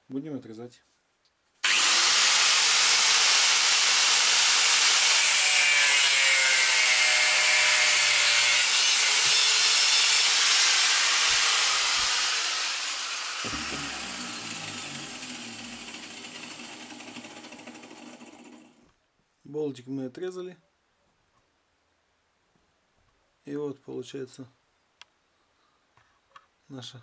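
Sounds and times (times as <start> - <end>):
angle grinder cutting steel bolt: 1.6 - 18.8.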